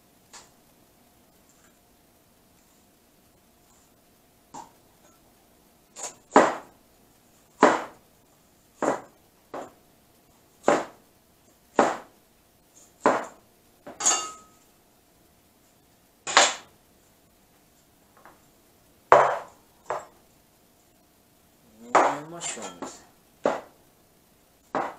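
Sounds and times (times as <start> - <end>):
cleaver chopping on plastic board: 6.0 - 6.7, 7.6 - 8.0, 8.8 - 9.8, 10.6 - 11.0, 11.8 - 12.1, 13.0 - 13.4, 23.4 - 23.8.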